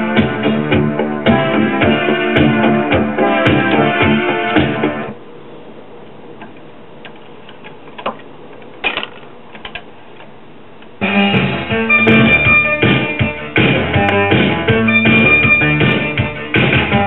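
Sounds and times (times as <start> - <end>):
music from speakers: 0.0 - 5.1, 11.0 - 17.0.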